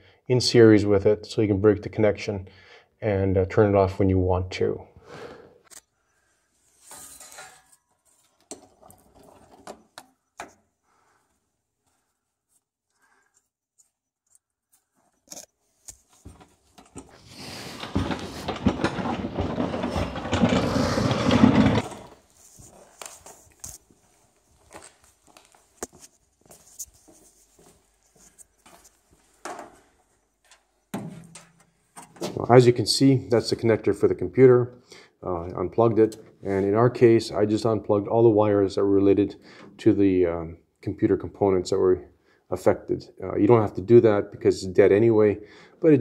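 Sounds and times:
camera handling rubbing and scraping: 0:13.3 - 0:24.0, 0:25.8 - 0:29.0
loud scraping and rustling: 0:16.2 - 0:23.8.

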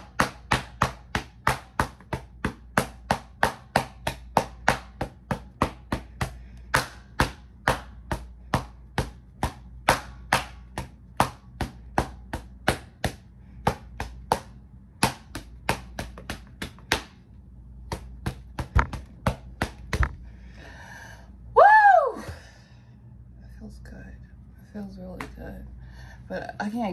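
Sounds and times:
sharp knocks: 0:17.9 - 0:20.2.

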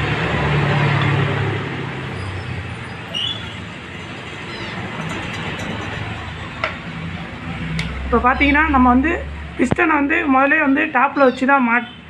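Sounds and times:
vehicle engine passing by: 0:00.0 - 0:09.6
road noise: 0:00.0 - 0:12.0.

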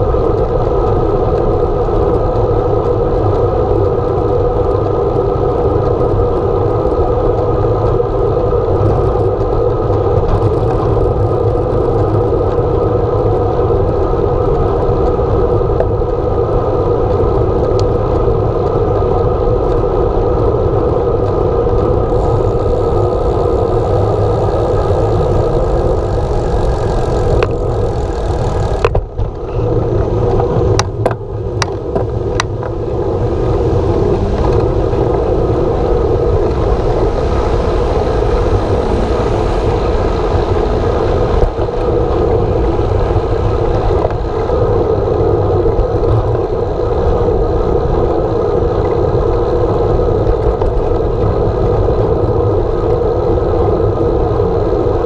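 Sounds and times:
bicycle tyre noise: 0:00.0 - 0:15.6, 0:16.3 - 0:53.9
wind rush over microphone: 0:00.0 - 0:55.0
passing traffic: 0:18.2 - 0:52.9.

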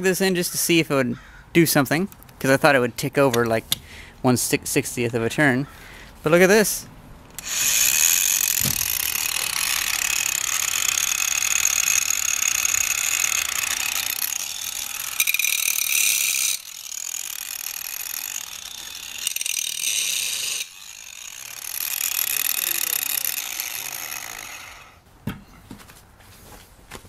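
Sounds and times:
angle grinder whining: 0:07.4 - 0:25.0.

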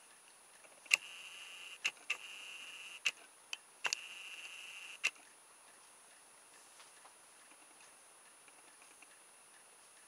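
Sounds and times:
camera zoom motor whining: 0:00.9 - 0:03.1, 0:03.9 - 0:05.1
camera click: 0:00.9 - 0:03.2, 0:03.8 - 0:05.2.

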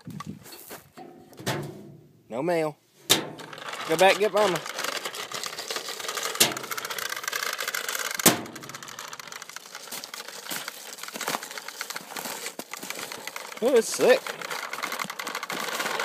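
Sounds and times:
toy lawnmower clicking on asphalt: 0:03.4 - 0:16.0.

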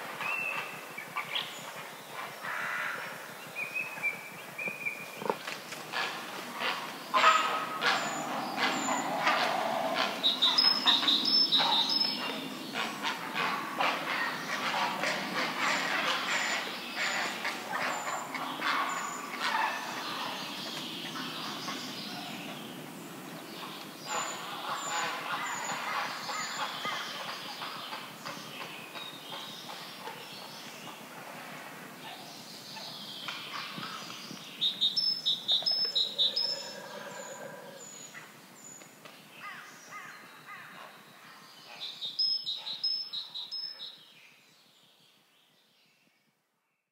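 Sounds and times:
wild birds singing: 0:00.0 - 0:31.3, 0:31.9 - 0:46.8
herons croaking: 0:05.2 - 0:28.4.

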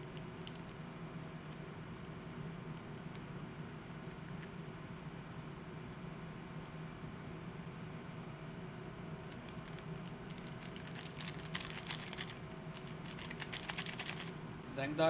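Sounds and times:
steady low hum: 0:00.0 - 0:15.0
crisp crackles: 0:09.2 - 0:14.3
flakes pattering onto noodles: 0:09.2 - 0:14.3
seasoning sachet crinkling: 0:09.2 - 0:14.3.

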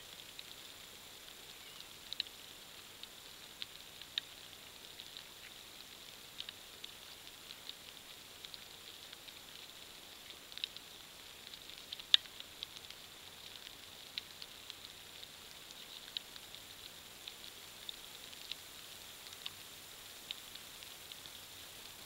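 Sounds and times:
faint steady hiss: 0:00.0 - 0:22.0
light ticks and taps: 0:01.7 - 0:02.4, 0:03.0 - 0:19.6.

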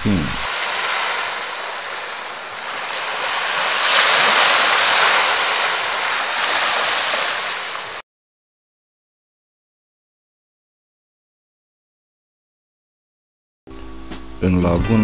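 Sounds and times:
sea waves washing onto beach: 0:00.0 - 0:08.0.

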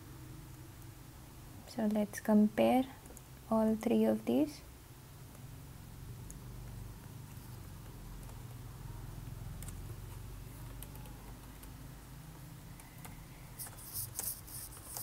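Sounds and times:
laptop keys clicking: 0:07.6 - 0:15.0.

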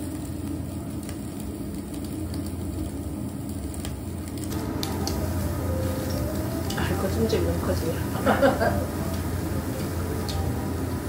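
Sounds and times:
small crackles: 0:00.0 - 0:07.4
meat sizzling on a grill: 0:00.0 - 0:11.0
steady low hum: 0:00.0 - 0:11.0.

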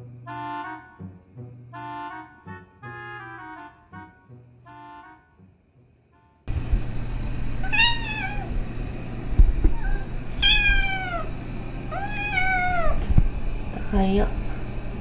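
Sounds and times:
kitten chirp: 0:07.6 - 0:08.5, 0:09.7 - 0:11.3, 0:11.9 - 0:13.0
kittens meowing: 0:07.6 - 0:08.5, 0:09.6 - 0:11.3, 0:11.9 - 0:13.0.

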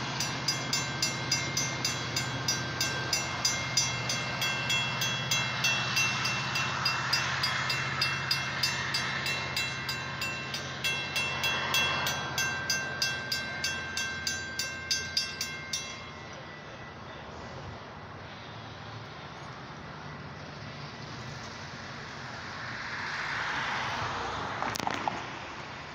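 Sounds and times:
train rushing past: 0:00.0 - 0:19.1
railroad crossing bells ringing: 0:00.0 - 0:24.0.

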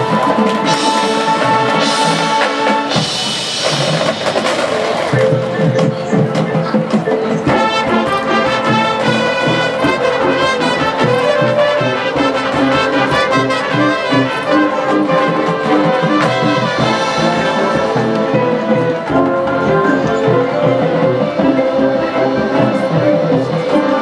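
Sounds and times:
brass chords: 0:00.0 - 0:24.0
marching drums: 0:00.0 - 0:24.0.

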